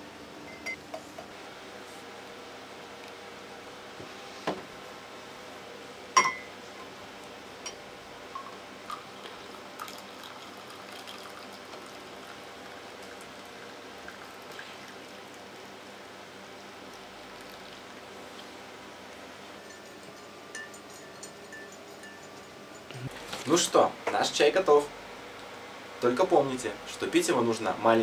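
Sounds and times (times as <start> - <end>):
tea pouring into glass cup: 8.8 - 15.4, 16.9 - 18.5.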